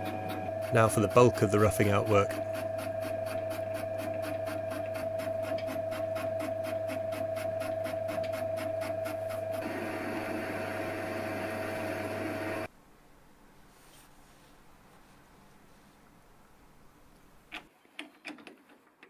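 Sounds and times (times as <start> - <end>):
metal lathe cutting steel: 0.0 - 3.6, 9.6 - 12.7.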